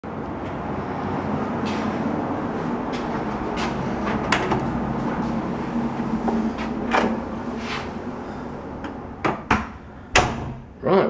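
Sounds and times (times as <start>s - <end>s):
low rumbling hum: 0.0s - 11.0s
door opening: 6.2s - 7.9s, 8.8s - 10.7s.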